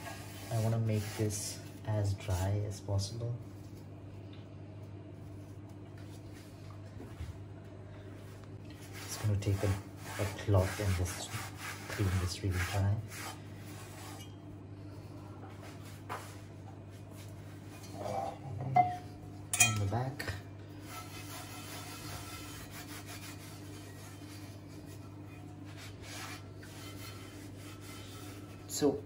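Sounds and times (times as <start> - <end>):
cloth rubbing on cast iron skillet: 0.0 - 2.5, 8.8 - 14.3, 15.5 - 18.4, 20.8 - 29.0
steady low hum: 0.0 - 29.0.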